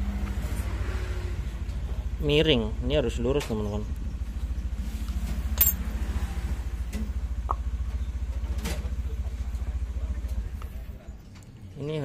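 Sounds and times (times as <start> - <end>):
sharp metallic clink: 5.6 - 5.9.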